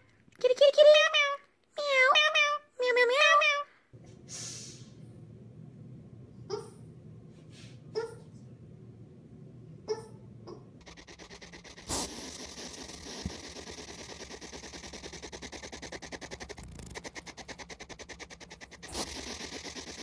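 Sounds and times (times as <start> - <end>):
hedgehog huffing: 9.9 - 20.0.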